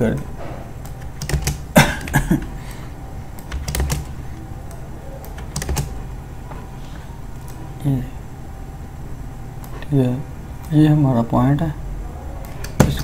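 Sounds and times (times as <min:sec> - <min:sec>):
faint low hum: 0:00.0 - 0:13.0
keyboard and mouse clicks: 0:03.4 - 0:04.1, 0:04.7 - 0:05.9, 0:12.4 - 0:13.0.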